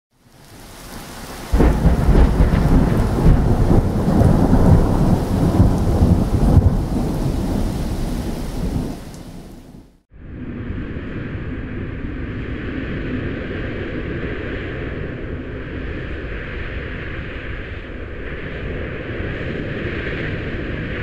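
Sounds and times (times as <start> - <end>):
thunder-like boom and rumble: 1.5 - 9.8.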